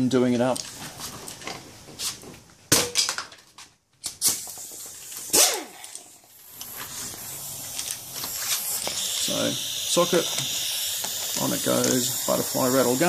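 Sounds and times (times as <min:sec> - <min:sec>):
steady hiss: 0:04.2 - 0:13.0.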